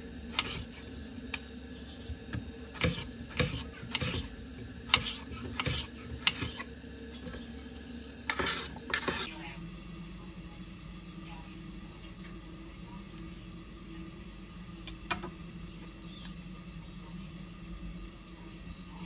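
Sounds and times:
faint frying sizzle: 0:00.0 - 0:19.0
utensil scraping a pan: 0:00.3 - 0:00.9, 0:02.7 - 0:06.7, 0:08.3 - 0:09.3.

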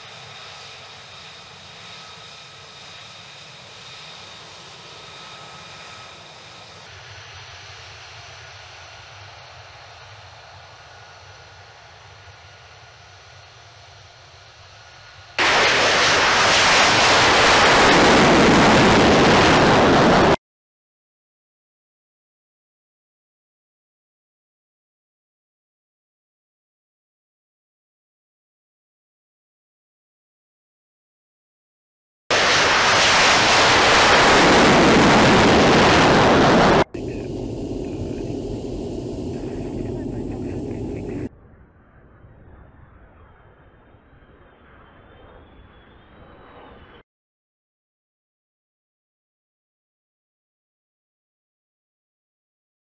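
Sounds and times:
jet engine roar: 0:00.0 - 0:20.4, 0:32.3 - 0:41.3, 0:41.9 - 0:47.0
jet engine whine: 0:00.0 - 0:20.4, 0:32.3 - 0:47.0.

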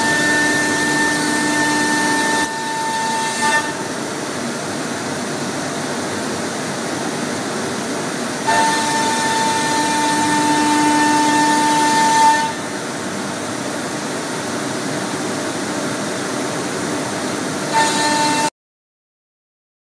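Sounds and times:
router spindle machining wood: 0:00.0 - 0:03.4
high steady whine: 0:00.0 - 0:18.5.

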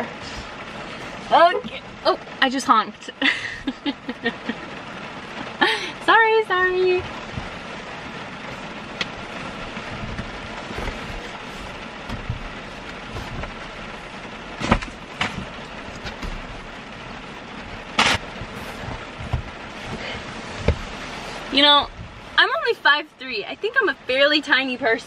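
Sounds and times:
knocks and bumps inside car: 0:00.0 - 0:02.9, 0:06.0 - 0:22.7
rain on a car: 0:00.0 - 0:25.0.

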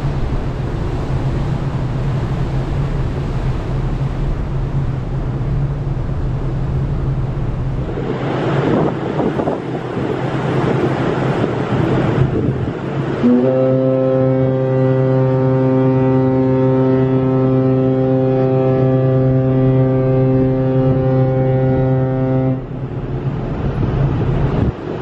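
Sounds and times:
sea noise: 0:00.0 - 0:25.0
wind: 0:00.0 - 0:25.0
ship horn blast: 0:07.7 - 0:23.3.

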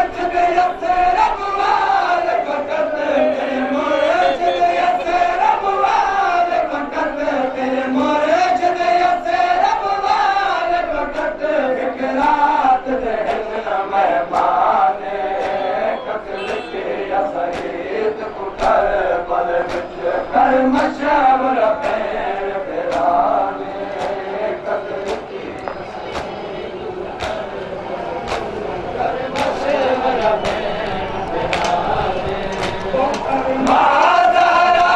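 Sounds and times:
men chanting a lament: 0:00.0 - 0:34.9.

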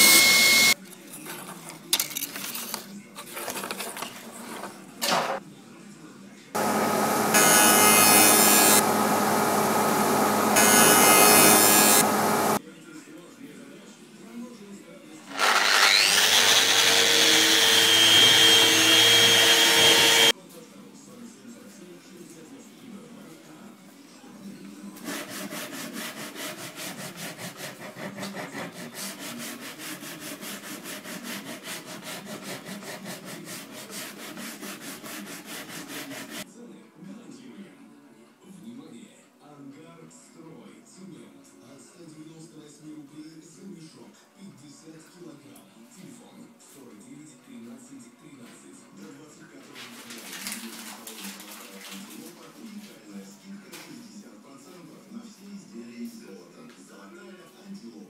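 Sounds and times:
cutter biting into wood: 0:15.3 - 0:20.3
sandpaper rubbing on wood: 0:25.0 - 0:36.5.

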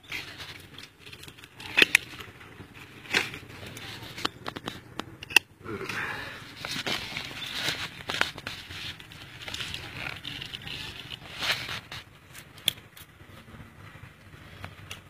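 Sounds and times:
plastic film crinkling: 0:06.4 - 0:12.9.

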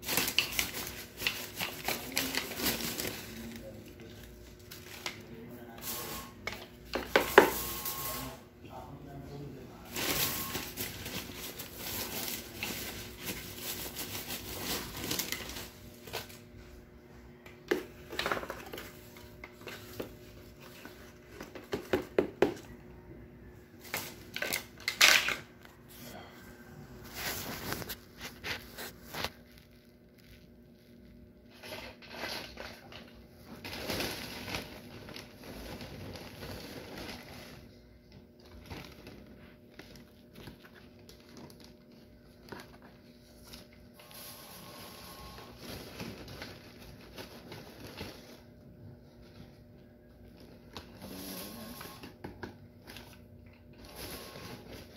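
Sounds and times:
plastic scoop knocking on pot: 0:21.4 - 0:22.7.

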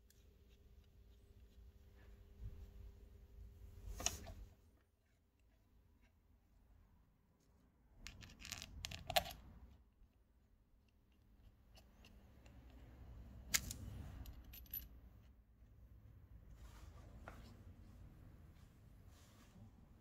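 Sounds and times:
metal parts scraping and clinking: 0:08.1 - 0:09.4, 0:13.5 - 0:14.9.

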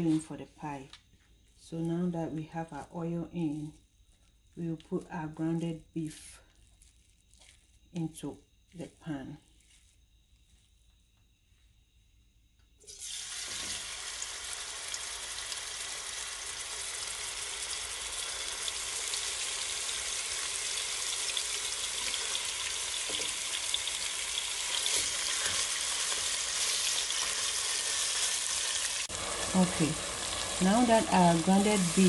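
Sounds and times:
meat sizzling in hot oil: 0:12.8 - 0:32.0.

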